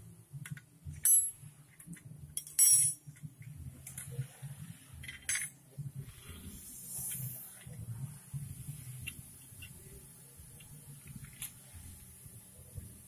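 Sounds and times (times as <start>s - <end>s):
spanner clinking on metal: 1.0s - 1.4s, 2.4s - 3.0s, 5.0s - 5.6s.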